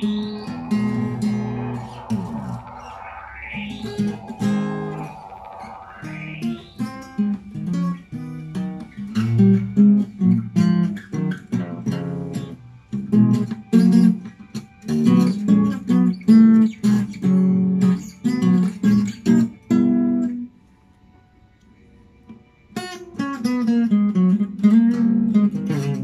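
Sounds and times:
fingerpicked acoustic guitar: 6.9s - 20.5s, 22.8s - 26.0s.

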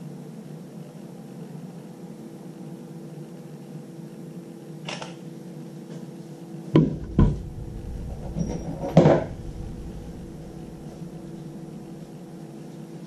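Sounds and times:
steady hum: 5.4s - 13.0s.

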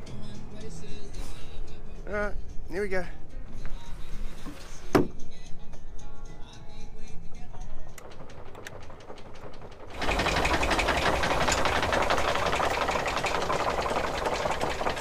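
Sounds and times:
anchor windlass hauling chain: 7.5s - 15.0s.

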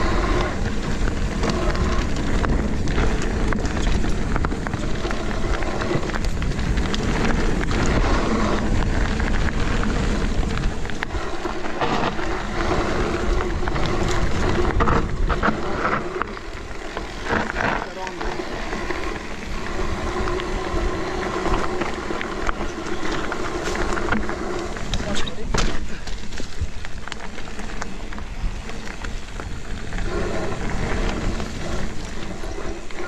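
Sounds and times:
tyres rushing over dirt and rock: 0.0s - 33.0s
wind buffeting microphone: 0.0s - 33.0s
bike knocks and rattles: 22.6s - 29.9s.

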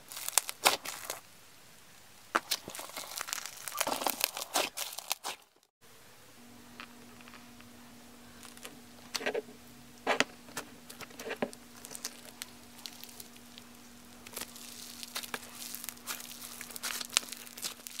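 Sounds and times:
sticky slime popping: 0.1s - 1.2s, 11.7s - 18.0s
faint steady hum: 5.8s - 18.0s.

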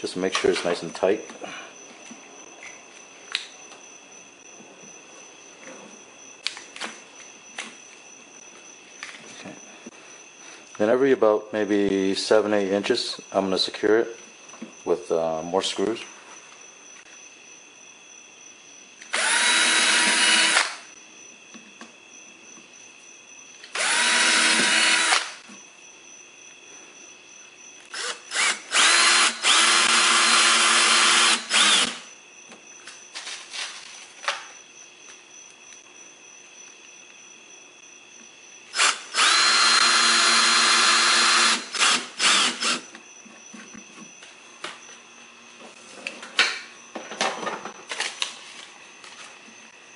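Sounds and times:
cordless drill driving screws: 19.1s - 20.8s, 23.7s - 25.4s, 27.9s - 32.0s, 38.8s - 42.9s.

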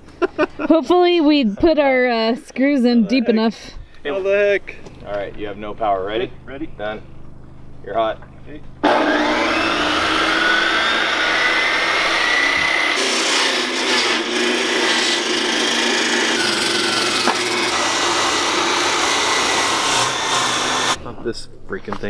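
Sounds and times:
circular saw cutting wood: 8.8s - 21.0s.

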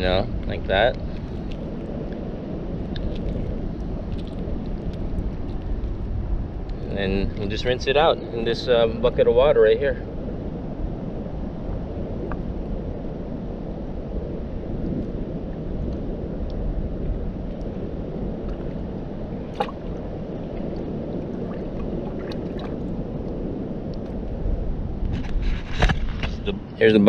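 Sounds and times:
low outdoor rumble: 0.0s - 27.0s
water sloshing in bucket: 19.5s - 22.9s.

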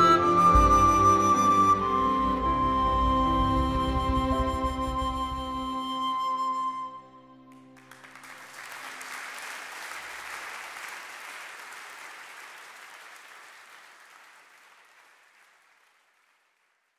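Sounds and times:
audience applause: 7.5s - 16.9s.

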